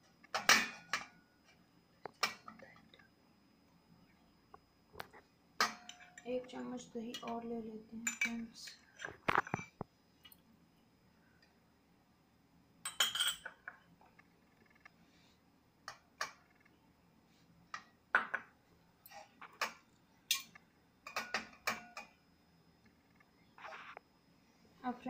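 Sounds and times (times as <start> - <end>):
metal objects clinking on metal plate: 5.6 - 9.8, 12.9 - 13.7, 19.1 - 22.2.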